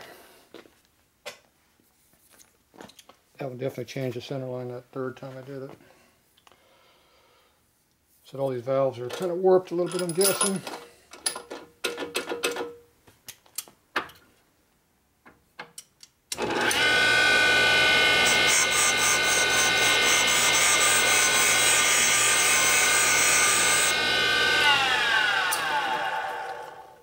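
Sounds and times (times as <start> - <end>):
machine motor whine: 16.4 - 20.6, 22.8 - 27.0
stone grinding valve: 18.2 - 24.0.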